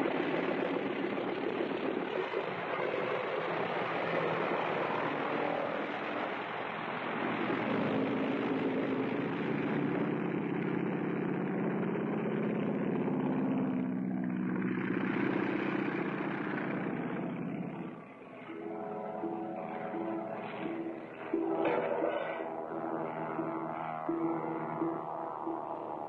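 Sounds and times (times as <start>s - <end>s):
propeller airplane piston engine: 0.0s - 26.0s.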